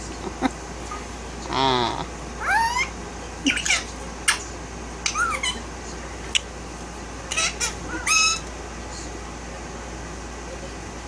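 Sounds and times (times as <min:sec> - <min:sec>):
parakeet chirping and squawking: 0:02.4 - 0:05.7, 0:07.3 - 0:08.5.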